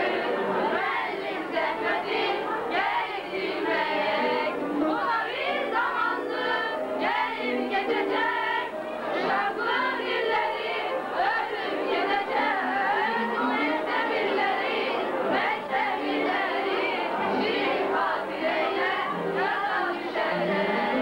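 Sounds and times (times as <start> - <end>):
girls choir singing: 0.0 - 21.0.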